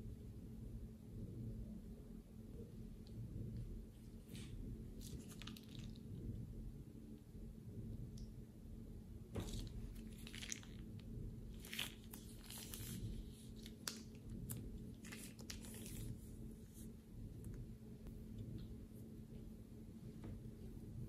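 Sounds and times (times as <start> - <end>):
plastic piping bag crinkling: 4.4 - 6.2, 9.4 - 16.9
sticky slime squelching: 9.4 - 17.6.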